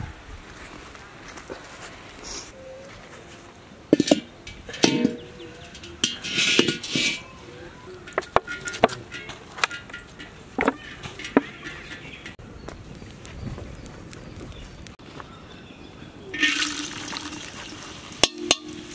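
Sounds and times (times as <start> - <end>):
iron pot clanking: 3.9 - 7.4, 8.0 - 12.4, 16.4 - 18.9.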